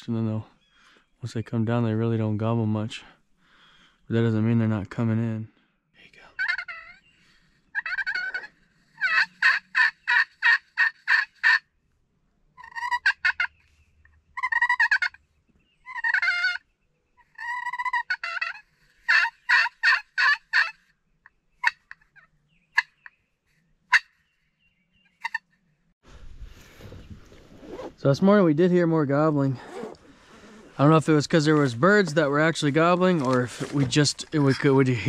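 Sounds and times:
turkey pot call yelps: 6.4s - 7.1s, 7.7s - 11.7s, 12.6s - 13.6s, 14.3s - 15.2s, 15.8s - 20.9s, 21.6s - 23.2s, 23.9s - 24.2s, 25.2s - 25.5s
sharp clucks: 14.4s - 15.2s, 17.2s - 20.8s, 21.6s - 23.2s.

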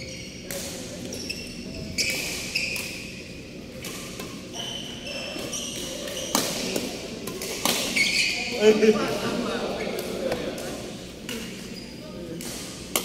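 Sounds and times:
shoes squeaking on court: 0.0s - 8.6s, 11.3s - 12.9s
racket striking shuttlecock: 5.4s - 8.0s, 12.4s - 13.0s.

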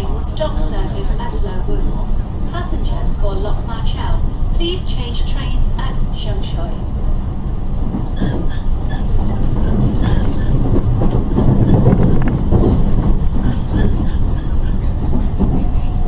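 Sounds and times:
electric train wheels rumbling on track: 0.0s - 16.0s.

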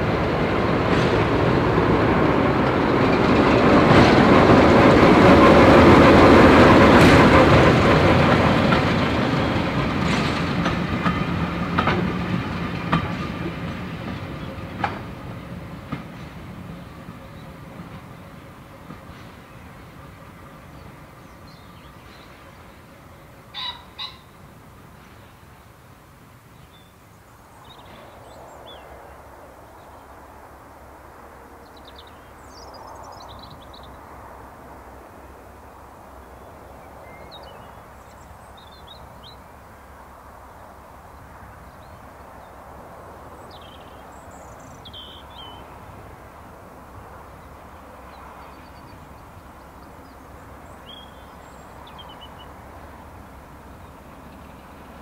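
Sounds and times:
birds singing and calling: 43.4s - 45.8s, 48.1s - 52.6s.

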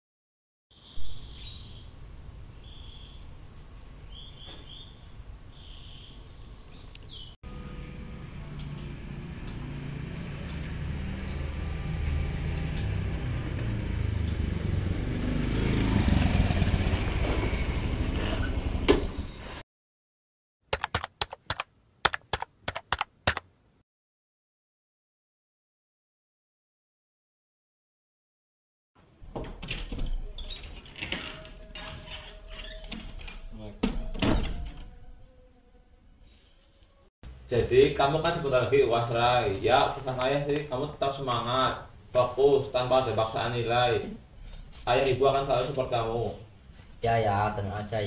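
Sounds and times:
birds chirping: 0.8s - 7.4s
sharp irregular clicks: 20.7s - 23.5s.

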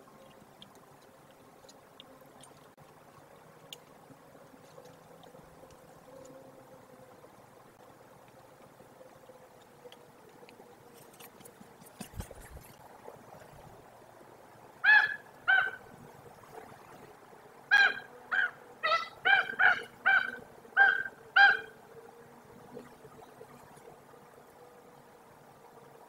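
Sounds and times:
raven calling: 14.8s - 15.9s, 17.7s - 21.8s.

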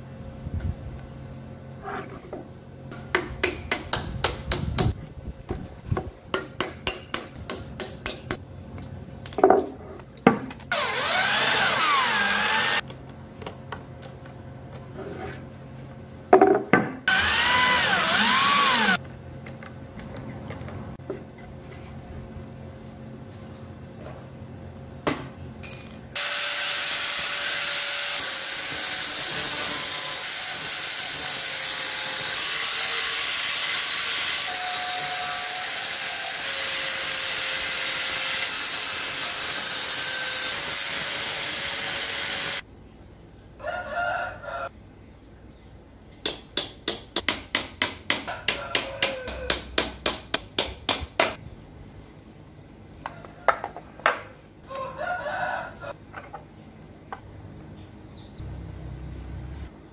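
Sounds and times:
power tool running on wood: 10.7s - 12.8s, 17.1s - 19.0s, 26.2s - 42.6s.

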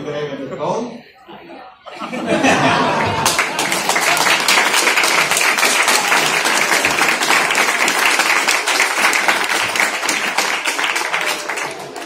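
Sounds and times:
audience applauding: 2.6s - 12.0s.

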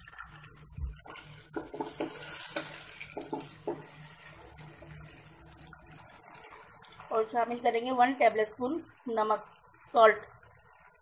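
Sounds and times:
meat and onions sizzling in oil: 0.0s - 11.0s
wooden spoon scraping pot: 1.0s - 4.4s.

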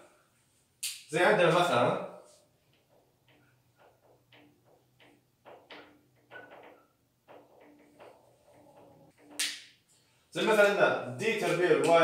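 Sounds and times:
marker scratching on whiteboard: 2.7s - 9.6s
marker tapping on board: 2.7s - 9.7s.

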